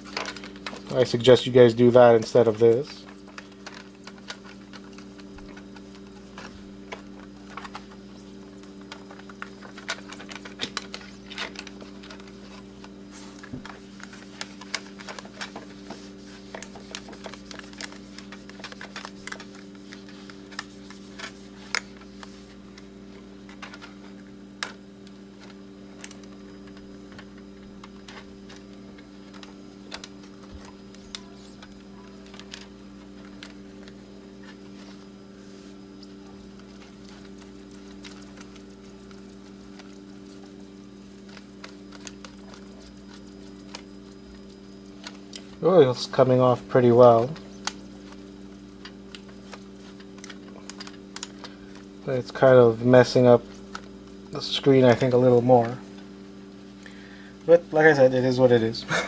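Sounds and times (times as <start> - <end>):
small clicks and scratches: 0.0 - 56.1
steady low hum: 0.0 - 59.0.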